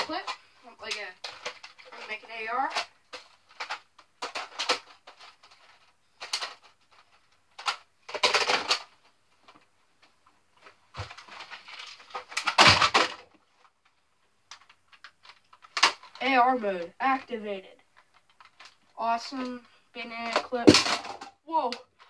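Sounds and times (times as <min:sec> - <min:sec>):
plastic toy parts clattering: 0:00.0 - 0:09.6, 0:10.6 - 0:13.7, 0:14.5 - 0:16.4, 0:18.0 - 0:22.0.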